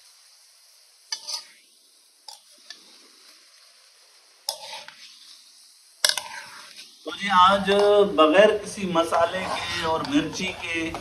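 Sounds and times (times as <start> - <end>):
faint steady hiss: 0.0 - 11.0
metal spoon scraping steel pot: 1.1 - 1.6, 4.5 - 5.1, 6.0 - 6.8, 9.1 - 11.0.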